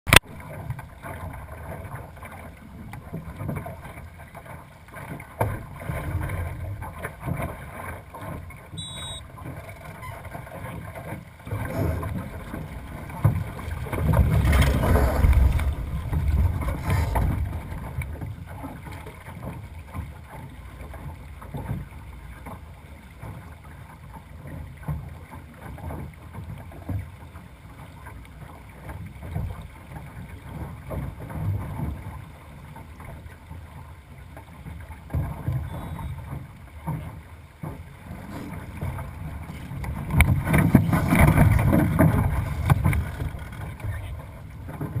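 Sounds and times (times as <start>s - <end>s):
water rushing along hull: 0.1s - 45.0s
wind buffeting microphone: 11.5s - 18.8s.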